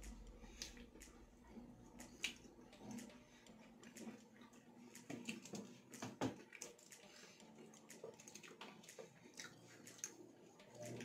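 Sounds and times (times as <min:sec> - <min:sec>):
faint steady hum: 0:00.0 - 0:06.2
chewing and lip-smacking: 0:00.0 - 0:11.0.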